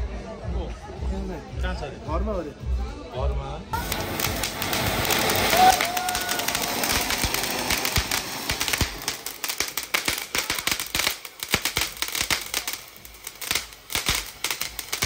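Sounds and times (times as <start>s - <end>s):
firework pops and cracks: 3.8s - 15.0s
firework sparks hissing: 3.8s - 15.0s.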